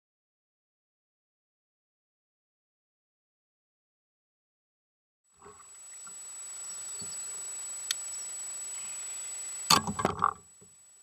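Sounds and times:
high whine: 5.3s - 11.0s
steady hiss: 5.3s - 11.0s.

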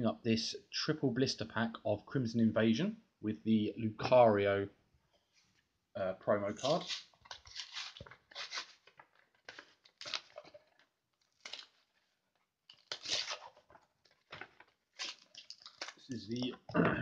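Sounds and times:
plastic and card tearing: 6.5s - 12.1s, 12.7s - 16.5s.

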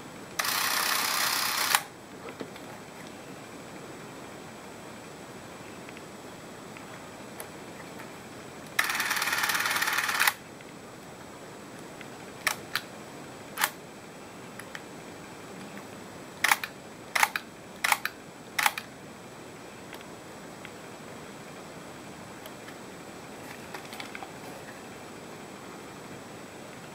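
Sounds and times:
camera motor whirring: 0.4s - 1.9s, 8.8s - 10.4s
sharp camera control clicks: 0.4s - 1.9s, 8.8s - 10.4s, 12.4s - 12.8s, 16.4s - 18.9s.

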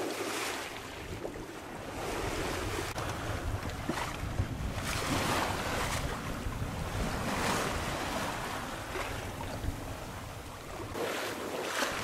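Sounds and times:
water rushing along hull: 0.0s - 12.0s
wind buffeting microphone: 0.9s - 11.0s.

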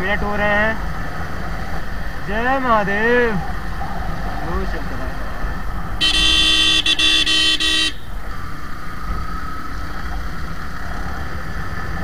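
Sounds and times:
motorcycle rumbling: 0.0s - 12.0s
vehicle horn blaring: 6.0s - 8.1s.

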